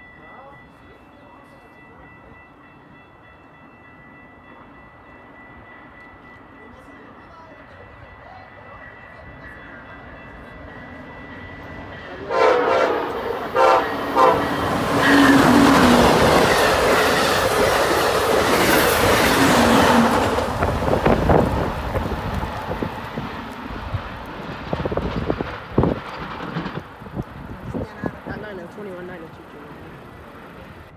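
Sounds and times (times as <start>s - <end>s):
train passing at speed: 0.0s - 30.9s
train horn blasts: 12.2s - 16.4s
train wheel clatter: 12.8s - 30.8s.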